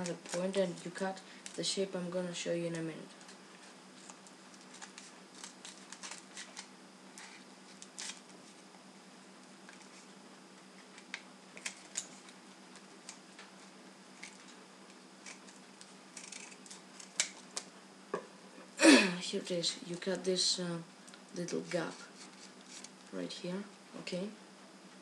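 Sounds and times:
faint steady hum: 0:00.0 - 0:25.0
paper crinkling: 0:03.1 - 0:08.6, 0:15.2 - 0:17.7, 0:21.6 - 0:23.0
scissors snipping paper: 0:04.0 - 0:08.3, 0:16.2 - 0:17.7.

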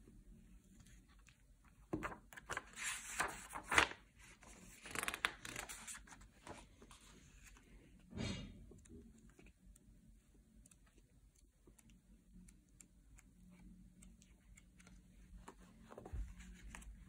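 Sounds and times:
paper pages turning: 0:02.0 - 0:07.6.

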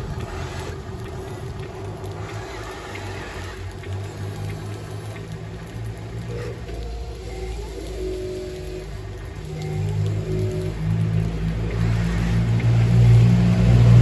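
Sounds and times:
toy electric motor whirring: 0:06.3 - 0:10.7.

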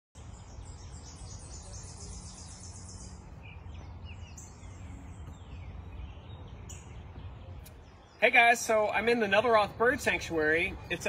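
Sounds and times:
low steady rumble: 0:00.2 - 0:08.2
bird chirps: 0:00.2 - 0:11.0.

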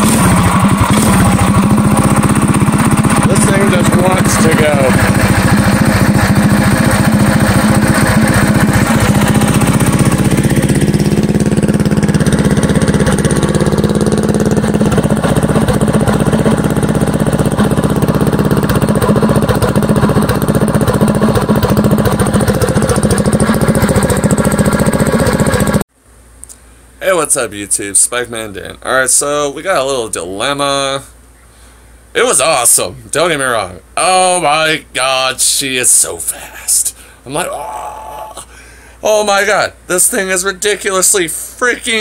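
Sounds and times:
minibike engine idling: 0:00.0 - 0:25.8.

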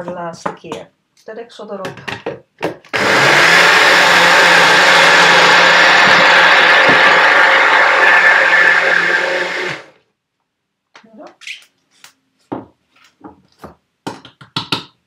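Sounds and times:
blender motor whirring: 0:02.9 - 0:10.0.

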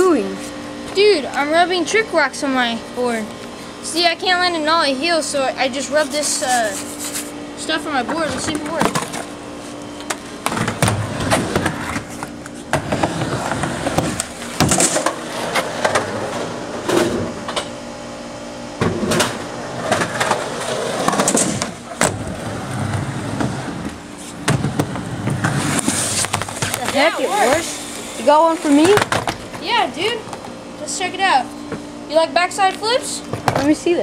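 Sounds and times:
skateboard wheels rolling on concrete: 0:10.1 - 0:17.4, 0:18.9 - 0:31.3.

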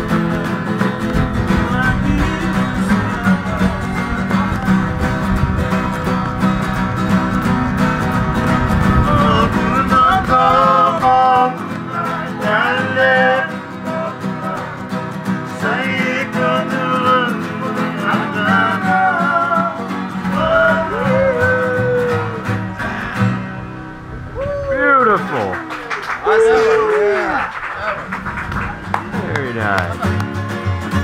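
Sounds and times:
men singing: 0:00.0 - 0:05.1, 0:08.8 - 0:14.9, 0:15.5 - 0:23.5
acoustic guitars strumming: 0:00.0 - 0:26.8, 0:27.4 - 0:31.0.

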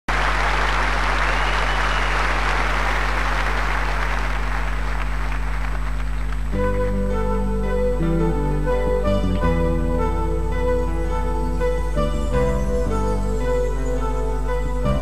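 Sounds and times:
audience applauding: 0:00.1 - 0:06.6
classical guitar playing: 0:06.5 - 0:15.0.

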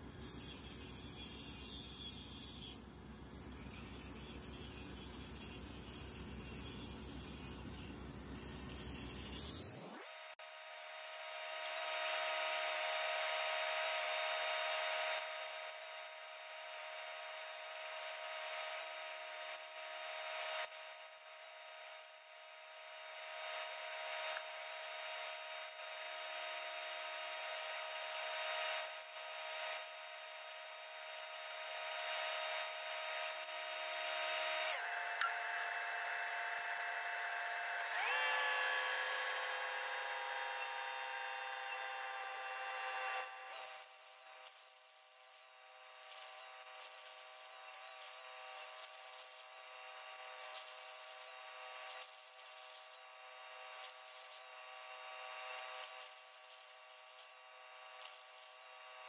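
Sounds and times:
angle grinder grinding steel: 0:00.0 - 0:10.1, 0:28.7 - 0:59.0.

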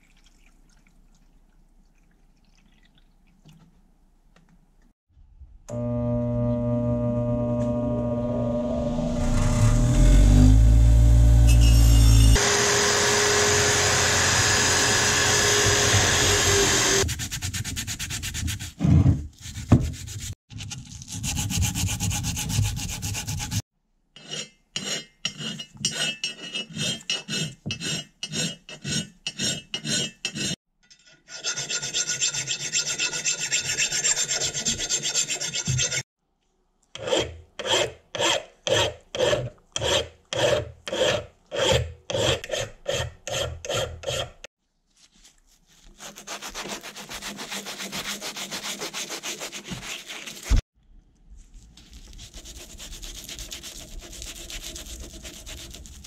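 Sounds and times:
electric drill grinding metal: 0:05.7 - 0:17.0
hand file scraping metal: 0:21.0 - 0:23.6, 0:24.2 - 0:36.1, 0:37.0 - 0:44.5, 0:46.0 - 0:50.6, 0:52.3 - 0:56.0.

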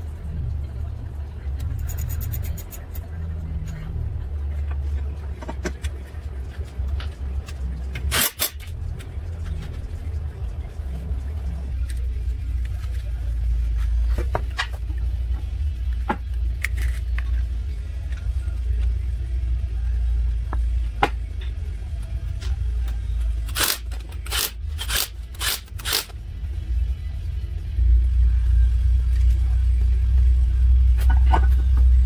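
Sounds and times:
impact wrench bursts: 0:23.5 - 0:26.1.

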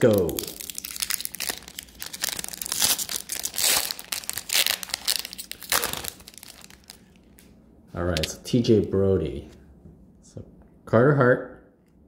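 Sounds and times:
foil wrapper crinkling and tearing: 0:00.0 - 0:07.4.

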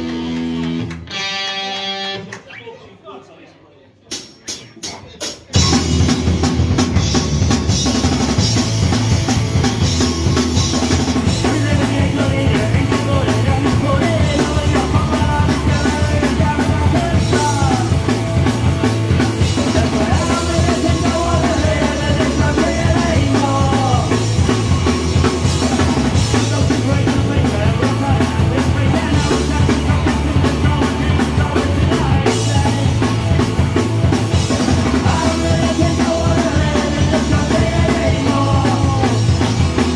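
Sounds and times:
punk rock band playing: 0:00.0 - 0:02.6, 0:04.1 - 0:39.9.

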